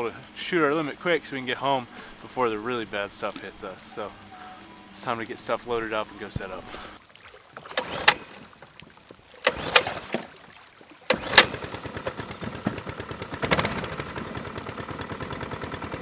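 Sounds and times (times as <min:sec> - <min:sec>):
small gas engine puttering: 0:07.6 - 0:10.3, 0:11.1 - 0:16.0.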